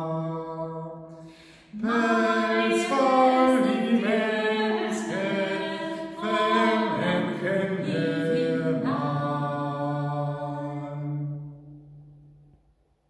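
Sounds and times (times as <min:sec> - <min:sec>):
man and woman singing: 0:01.7 - 0:11.0.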